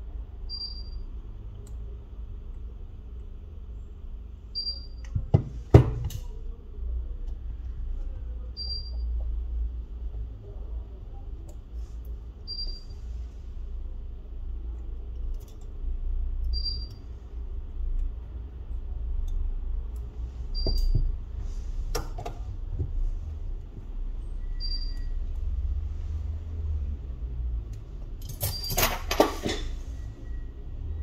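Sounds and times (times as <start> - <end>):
short high beep: 24.4 - 25.2.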